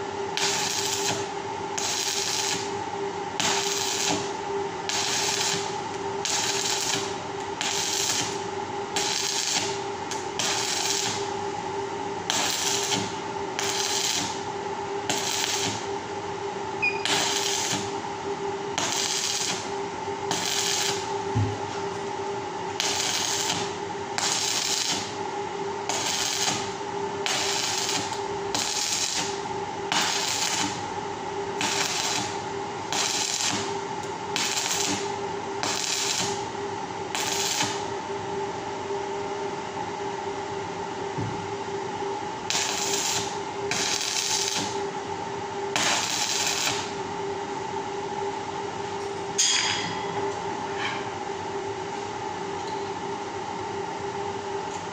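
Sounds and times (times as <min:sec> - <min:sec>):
steady hum: 0:00.0 - 0:54.6
arc welding crackling: 0:00.3 - 0:02.8, 0:03.4 - 0:11.5, 0:12.2 - 0:16.1, 0:17.0 - 0:18.1, 0:18.7 - 0:25.2, 0:25.8 - 0:36.5, 0:37.1 - 0:37.9, 0:42.4 - 0:44.9, 0:45.7 - 0:47.0.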